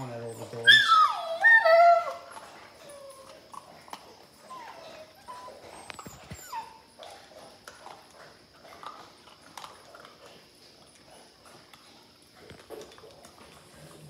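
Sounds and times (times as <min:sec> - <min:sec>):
puppies whimpering and squeaking: 0:00.0 - 0:07.6.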